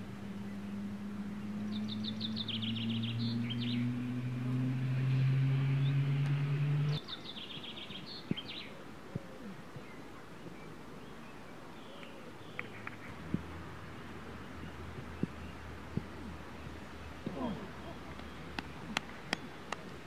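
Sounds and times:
low steady drone: 0.0 - 7.0.

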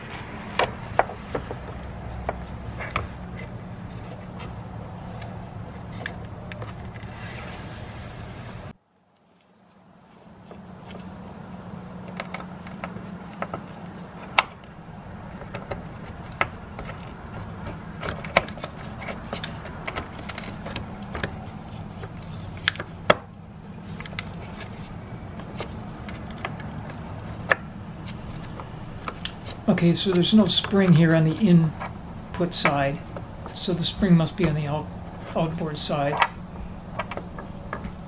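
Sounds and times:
steady low hum: 0.0 - 38.0
small metallic clicks and scrapes: 12.0 - 23.1, 23.8 - 33.7.

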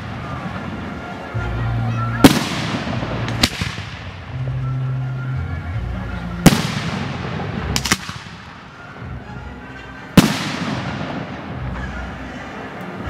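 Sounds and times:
firework cracks: 0.0 - 1.0, 2.2 - 4.5, 6.4 - 8.8, 10.2 - 11.7
loud firework bang: 2.2 - 4.2, 6.4 - 8.4, 10.2 - 11.3.

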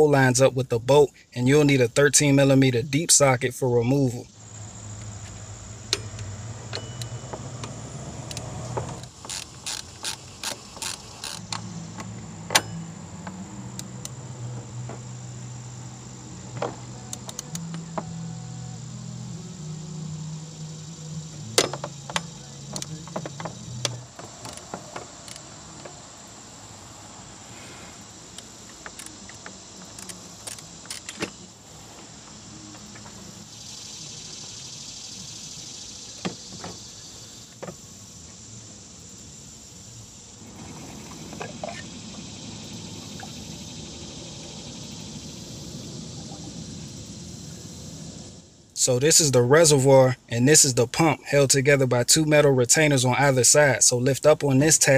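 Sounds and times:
high-pitched whine: 3.8 - 30.6, 39.0 - 51.2
low hum shifting in pitch: 4.3 - 9.0, 11.4 - 24.4
socket wrench clicks and knocks: 5.9 - 8.4.

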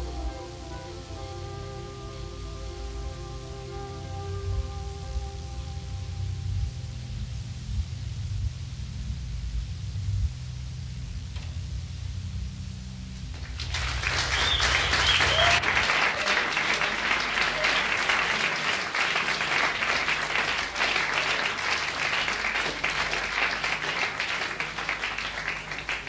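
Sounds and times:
band holding low note: 0.0 - 26.0
audience applauding: 13.3 - 26.0.

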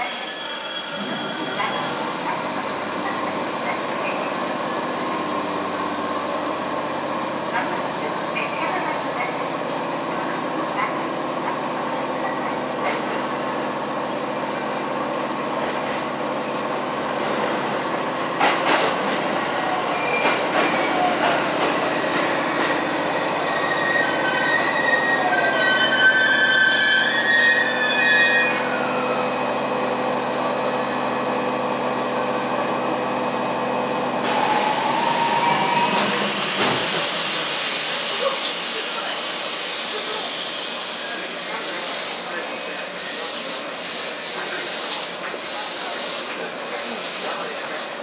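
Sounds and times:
wheel and brake squeals: 0.0 - 2.0, 19.9 - 21.0, 23.6 - 29.0
train rumbling: 0.9 - 27.1, 28.6 - 47.7
hiss: 36.3 - 47.4.

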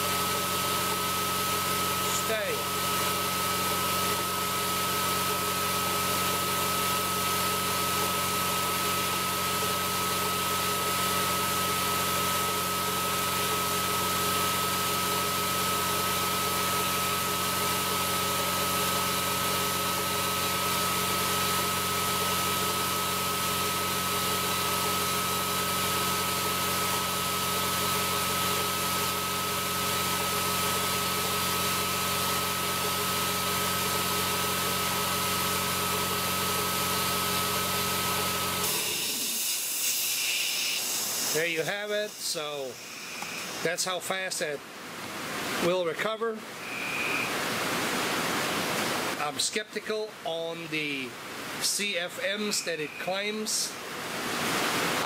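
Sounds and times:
air compressor running: 0.0 - 44.2
high whine: 46.6 - 47.6, 51.8 - 53.8.

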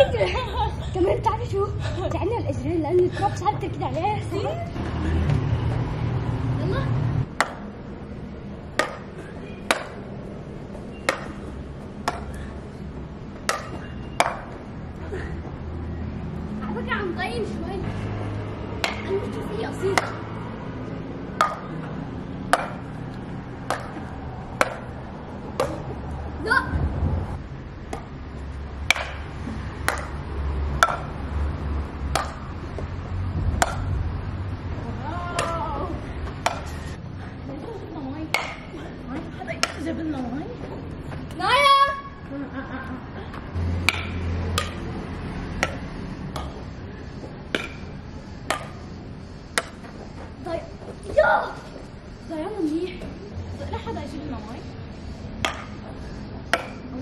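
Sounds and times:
racket hitting shuttlecock: 7.3 - 7.8, 8.7 - 10.2, 10.8 - 12.5, 13.4 - 14.6, 18.7 - 20.4, 21.3 - 26.0, 27.8 - 32.9, 33.5 - 34.0, 35.2 - 36.9, 38.3 - 38.8, 39.5 - 39.9, 43.6 - 46.7, 47.4 - 48.9, 49.5 - 50.0, 55.4 - 57.0.

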